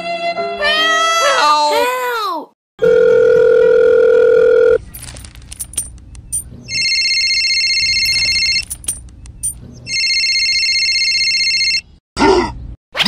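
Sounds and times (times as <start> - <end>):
electronic ringing tone: 2.8 - 4.8, 6.7 - 8.8, 9.9 - 11.9.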